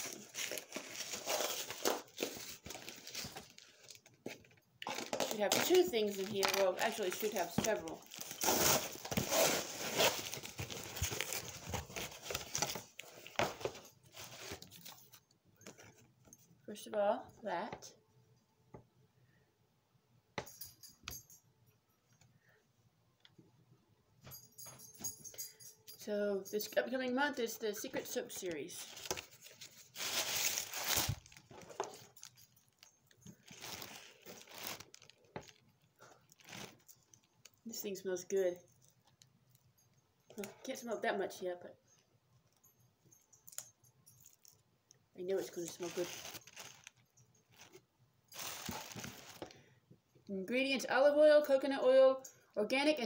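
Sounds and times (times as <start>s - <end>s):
paper rustling: 5.0s - 16.0s, 28.8s - 32.1s, 33.3s - 35.6s, 45.4s - 47.8s, 48.4s - 49.5s
cardboard box tearing: 8.1s - 12.7s.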